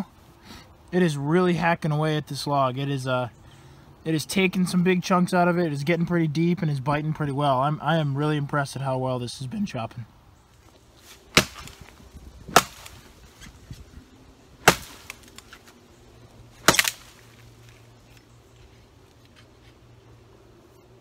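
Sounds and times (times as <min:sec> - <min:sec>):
shovel blade chopping log: 0:11.1 - 0:13.6, 0:14.6 - 0:15.8, 0:16.6 - 0:17.4.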